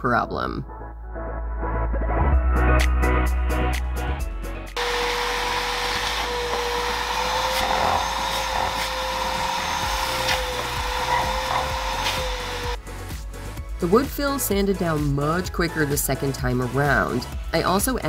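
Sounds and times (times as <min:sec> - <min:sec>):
music: 0:00.0 - 0:18.0
vacuum whining: 0:04.8 - 0:12.8.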